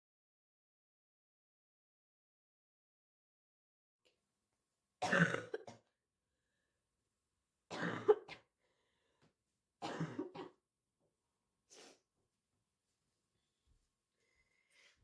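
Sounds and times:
girl coughing: 0:05.0 - 0:05.8, 0:07.7 - 0:08.5, 0:09.8 - 0:10.6.

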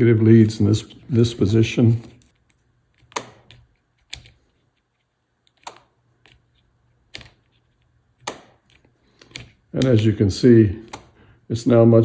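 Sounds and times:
sharp switch clicks: 0:08.2 - 0:08.6.

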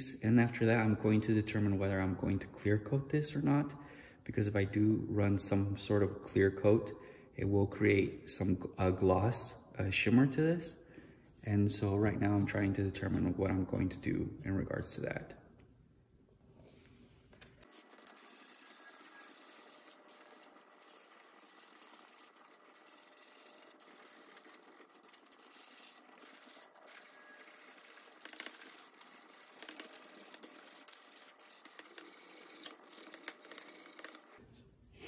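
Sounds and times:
sandpaper scratching: 0:17.6 - 0:34.2.

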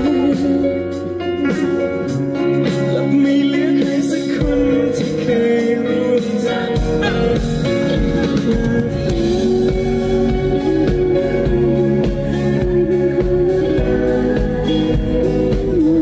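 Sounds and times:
man singing: 0:00.0 - 0:16.0
low bass: 0:06.7 - 0:16.0.

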